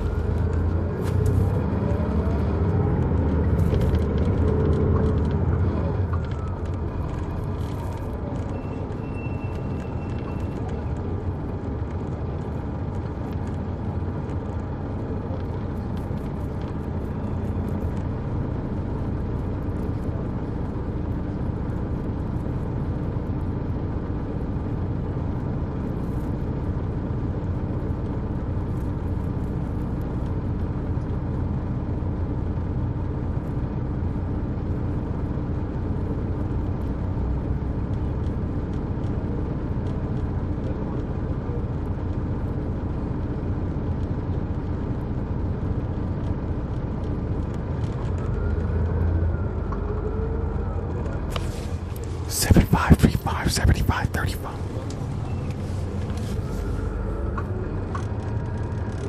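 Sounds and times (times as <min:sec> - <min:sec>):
diesel engine drone inside bus: 0:00.0 - 0:59.0.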